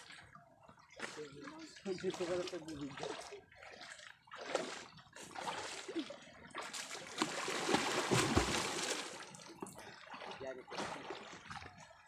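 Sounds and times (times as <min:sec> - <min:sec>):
water splashing from swimmer: 0:00.0 - 0:12.0
wet net pulled from water: 0:06.8 - 0:09.2.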